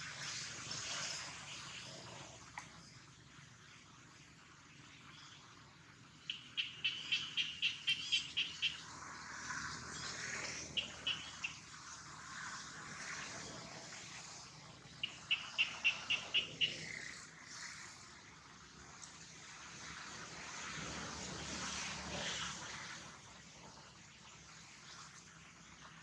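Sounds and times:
bird chirping: 0:06.2 - 0:08.8, 0:10.8 - 0:11.6, 0:15.0 - 0:17.1.

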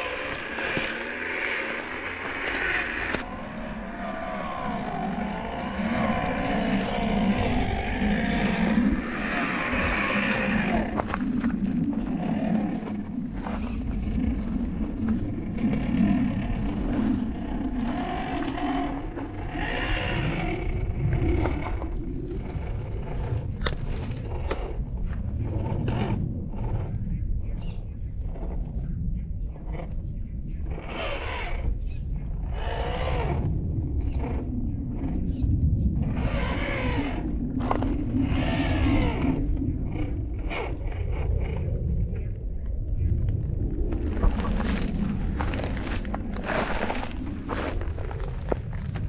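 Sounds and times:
electric motor and gearbox whining: 0:00.0 - 0:26.9, 0:36.0 - 0:41.6
steady low rumble: 0:00.0 - 0:49.0
tyres scraping on stone: 0:44.1 - 0:49.0.

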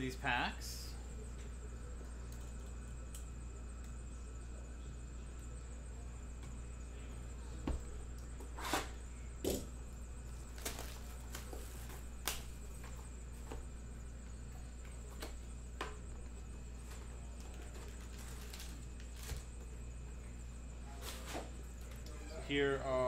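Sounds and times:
plastic shrink-wrap tearing: 0:17.7 - 0:19.4.

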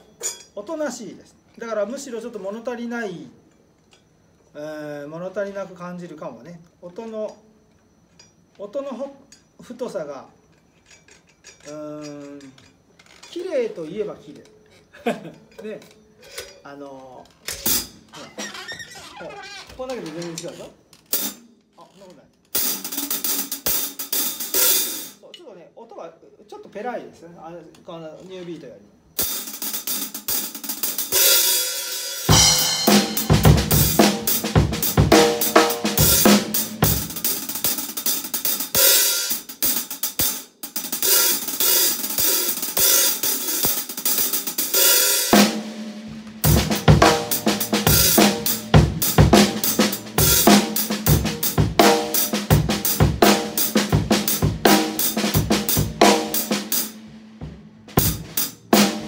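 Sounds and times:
kick and snare drums: 0:32.3 - 0:37.8, 0:45.3 - 0:59.0.

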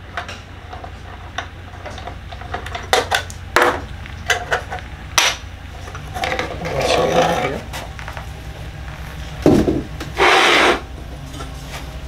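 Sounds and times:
metal rubbing and scraping: 0:05.7 - 0:07.9, 0:10.1 - 0:11.9.

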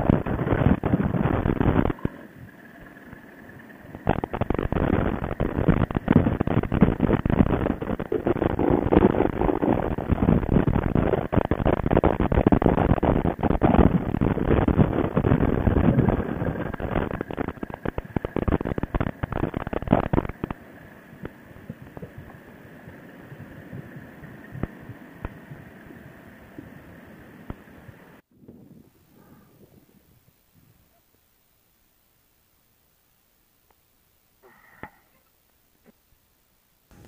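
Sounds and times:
motorcycle running: 0:00.0 - 0:28.2
wind buffeting microphone: 0:00.0 - 0:30.9
faint steady whine: 0:00.0 - 0:37.0.

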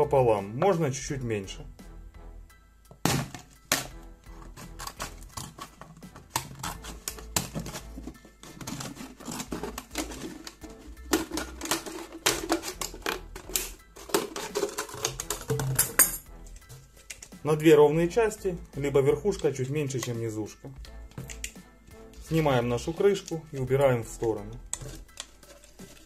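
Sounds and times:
background music: 0:00.0 - 0:26.0
scissors cutting plastic: 0:03.7 - 0:16.0, 0:24.5 - 0:26.0.

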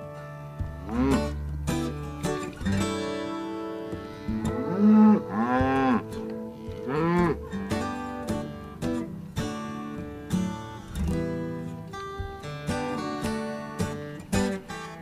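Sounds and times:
strummed acoustic guitar music: 0:00.0 - 0:15.0
cattle mooing: 0:00.8 - 0:01.4, 0:04.2 - 0:07.6.

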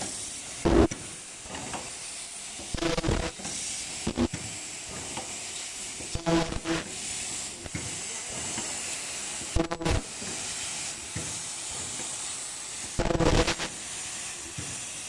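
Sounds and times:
machine hissing: 0:00.0 - 0:15.0
machine buzzing burst: 0:00.6 - 0:00.9, 0:02.3 - 0:03.4, 0:04.0 - 0:04.3, 0:06.2 - 0:06.9, 0:09.4 - 0:10.1, 0:12.5 - 0:13.8.

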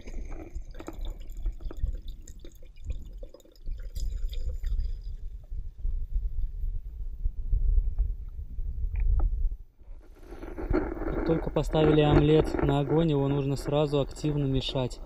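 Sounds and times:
liquid pouring into metal pot: 0:00.0 - 0:05.5
wind rumble on microphone: 0:00.0 - 0:15.0.

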